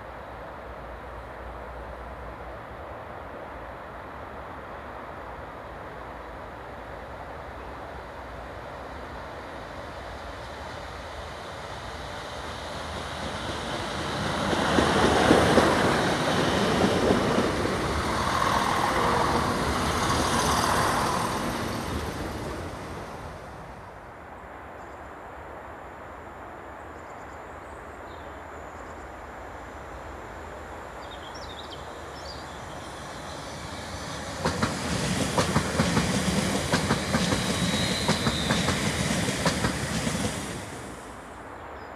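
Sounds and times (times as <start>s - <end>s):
passenger train passing: 0.0s - 24.6s, 28.6s - 41.9s
train wheels clattering over rail joints: 34.1s - 40.5s.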